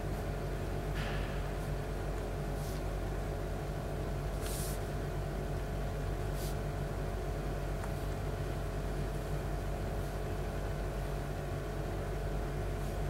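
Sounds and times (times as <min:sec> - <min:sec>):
steady mechanical hum: 0:00.0 - 0:13.0
ink brush stroking paper: 0:04.4 - 0:04.8.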